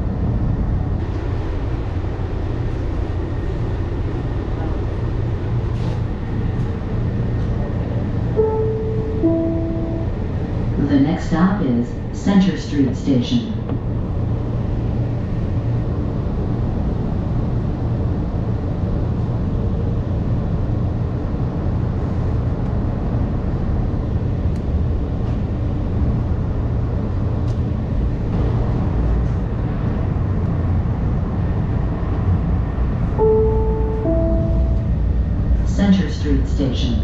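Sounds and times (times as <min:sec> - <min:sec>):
light rail car rumbling: 0:00.0 - 0:37.0
falling two-note chime: 0:08.4 - 0:10.2, 0:33.2 - 0:35.0.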